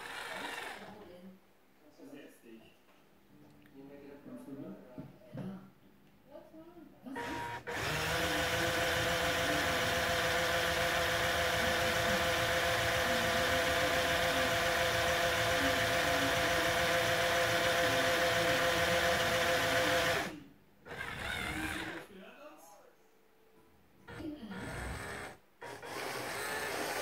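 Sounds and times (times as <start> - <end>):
toy motor and gears whirring: 0.0 - 1.0, 7.2 - 20.3, 20.9 - 22.0, 24.1 - 27.0.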